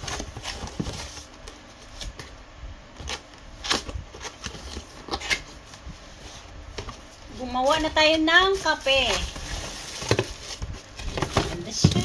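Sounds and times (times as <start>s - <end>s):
cardboard box rustling and scraping: 0.0s - 1.4s, 4.1s - 12.0s.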